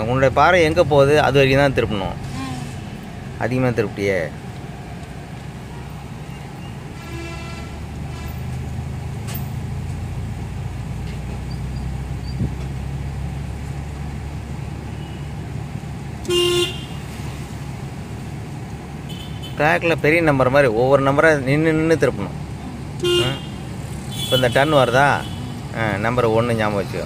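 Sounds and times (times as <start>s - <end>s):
car engine and road hum: 0.0s - 27.0s
vehicle horn honk: 7.0s - 8.5s, 16.2s - 17.0s, 19.1s - 19.6s, 23.0s - 25.6s.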